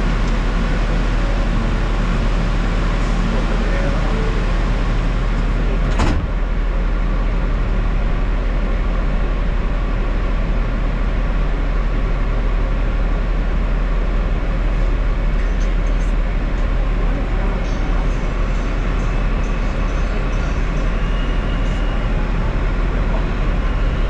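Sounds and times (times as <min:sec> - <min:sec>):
subway train rumble: 0:00.0 - 0:24.0.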